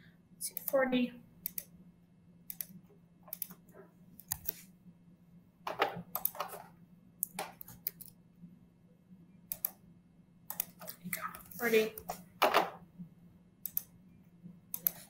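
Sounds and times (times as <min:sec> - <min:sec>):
mouse clicks: 0:02.5 - 0:03.6, 0:09.5 - 0:09.8, 0:10.5 - 0:11.0, 0:13.6 - 0:13.9, 0:14.7 - 0:15.0
keyboard keystrokes: 0:05.7 - 0:06.6, 0:10.5 - 0:11.0.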